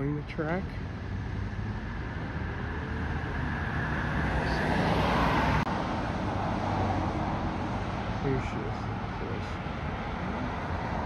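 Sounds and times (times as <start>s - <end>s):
steady low traffic hum: 0.0s - 11.0s
car passing: 0.7s - 11.0s.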